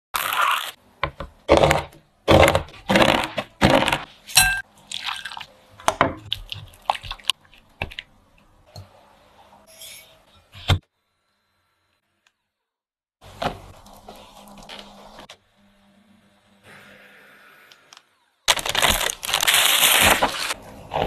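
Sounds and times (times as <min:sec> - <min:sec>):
foil crinkling: 0:18.5 - 0:20.6.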